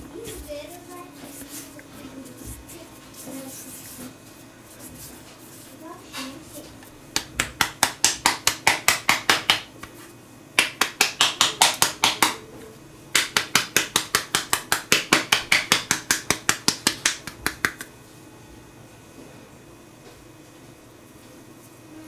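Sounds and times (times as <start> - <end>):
hands slapping dough: 6.8 - 10.0, 10.6 - 12.4, 13.1 - 18.0.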